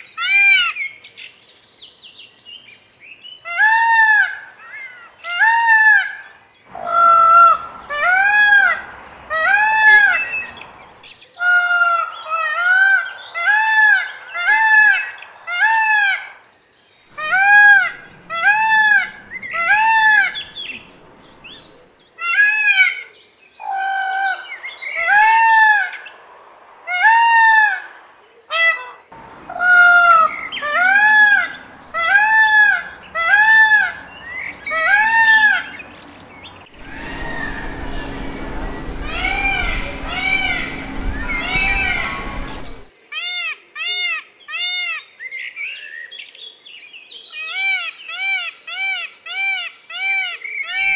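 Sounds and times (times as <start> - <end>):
peacock honking calls: 6.7 - 10.8, 17.1 - 22.9, 28.5 - 42.9.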